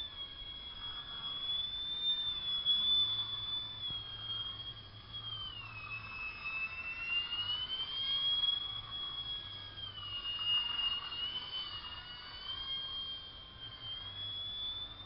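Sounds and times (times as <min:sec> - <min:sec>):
model plane motor whining: 0:00.0 - 0:15.0.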